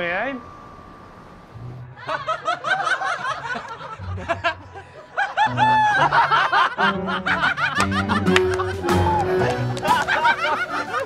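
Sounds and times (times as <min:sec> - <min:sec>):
young men laughing: 0:02.0 - 0:11.0
background music: 0:04.0 - 0:11.0.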